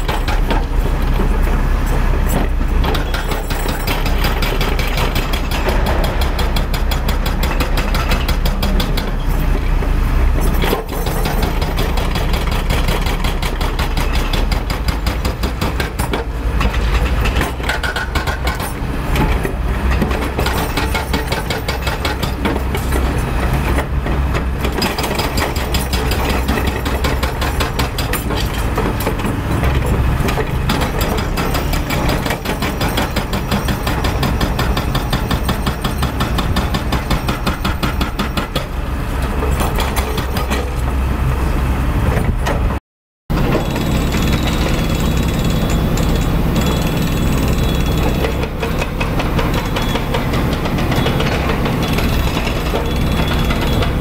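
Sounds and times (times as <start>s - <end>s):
hydraulic rock breaker hammering: 0.0s - 1.6s, 2.2s - 9.5s, 10.4s - 40.9s, 43.3s - 54.0s
diesel engine running: 38.8s - 54.0s.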